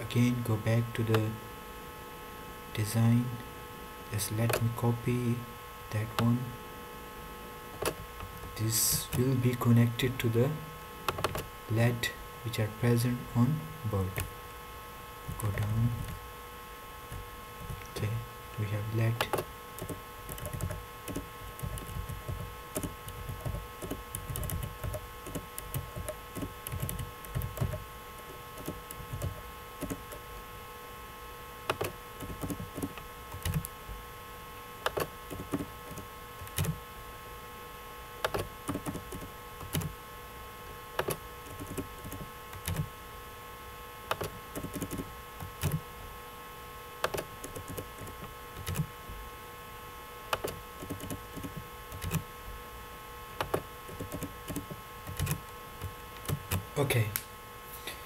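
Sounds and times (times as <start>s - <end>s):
steady background hum: 0.0s - 58.0s
keyboard typing: 11.1s - 11.5s, 19.2s - 30.2s, 31.7s - 33.7s, 34.8s - 36.8s, 38.2s - 39.9s, 41.0s - 42.9s, 44.1s - 45.8s, 47.0s - 48.9s, 50.3s - 52.2s, 53.4s - 56.6s.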